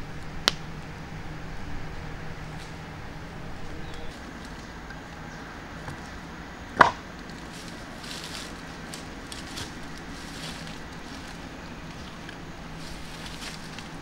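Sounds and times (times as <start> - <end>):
steps in grass and leaves: 2.2 - 6.2, 7.1 - 14.0.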